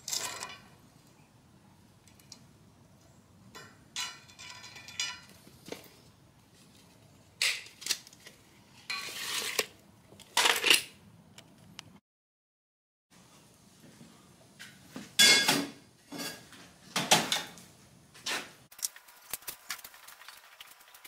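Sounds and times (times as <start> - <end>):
steel bars clinking and clanking: 3.6 - 5.3.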